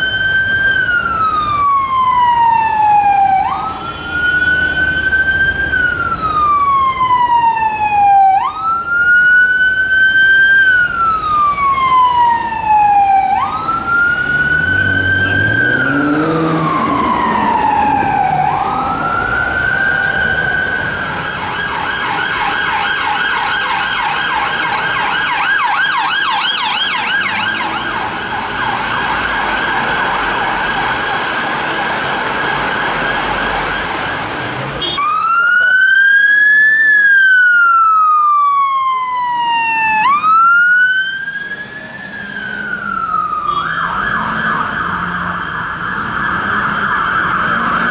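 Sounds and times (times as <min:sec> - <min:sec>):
police siren wail and yelp: 0:00.0 - 0:47.9
vehicle engine revving: 0:13.7 - 0:20.9.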